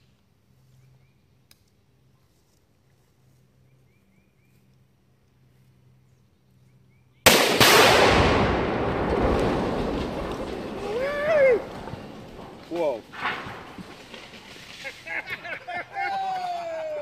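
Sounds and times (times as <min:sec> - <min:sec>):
very loud explosion blast: 0:07.3 - 0:14.0
sharp crack: 0:07.3 - 0:15.4
rolling rumble: 0:07.6 - 0:17.0.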